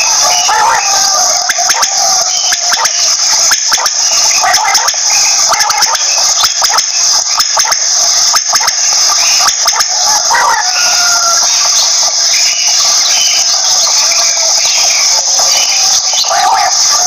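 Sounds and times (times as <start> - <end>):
quail calling: 0.0 - 17.0
steady high hiss: 0.0 - 17.0
rapid scatter of clicks: 1.4 - 10.0.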